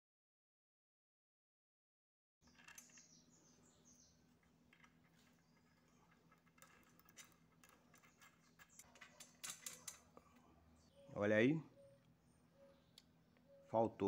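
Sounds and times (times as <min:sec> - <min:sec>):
faint bird chirps: 0:02.4 - 0:04.3, 0:10.4 - 0:14.0.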